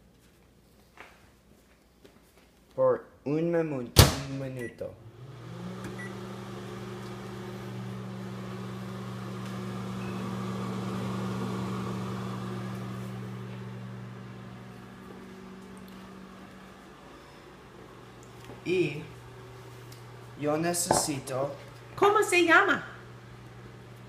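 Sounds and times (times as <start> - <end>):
microwave oven hum: 4.0 - 24.0
fan whirr: 5.0 - 24.0.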